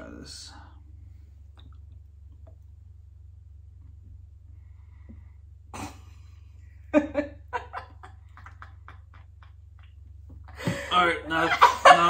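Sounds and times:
woman laughing: 6.9 - 9.9.

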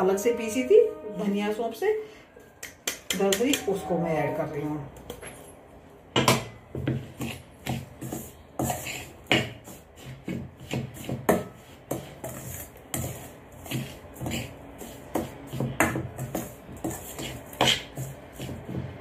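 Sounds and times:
spoon scraping spice in a pan: 6.9 - 19.0.

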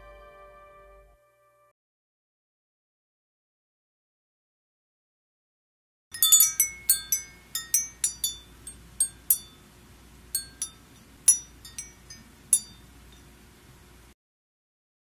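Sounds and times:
wind-chime-like tinkling: 6.2 - 9.7, 10.4 - 13.3.

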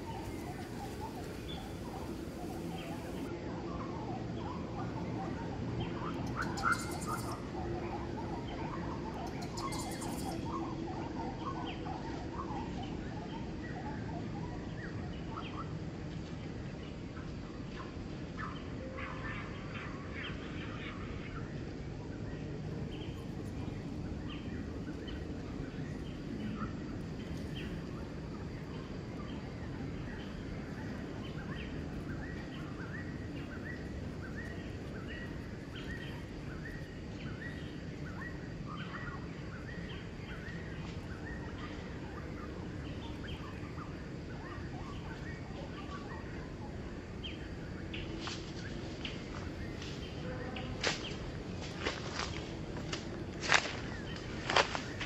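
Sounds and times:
small birds chirping: 0.0 - 3.3, 5.8 - 12.5, 22.8 - 55.0
low background noise: 0.0 - 55.0.

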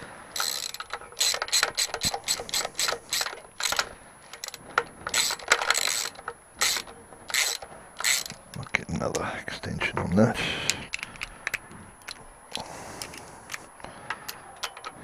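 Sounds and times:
socket ratchet clicking: 0.4 - 8.5.

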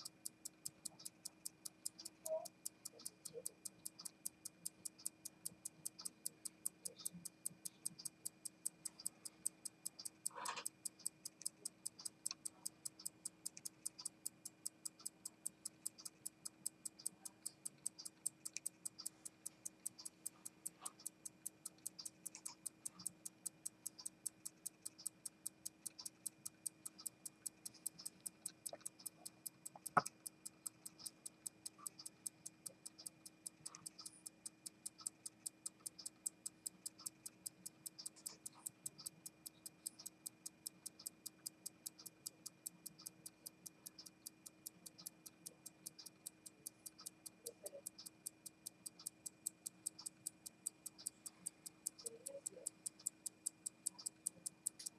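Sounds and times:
pocket watch ticking: 0.0 - 54.9
sharp click: 29.7 - 30.2.

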